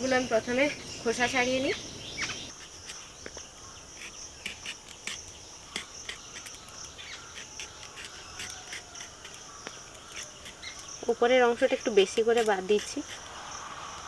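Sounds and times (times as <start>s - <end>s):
insect chirring: 0.0s - 14.0s
knife scraping gourd skin: 3.9s - 13.4s.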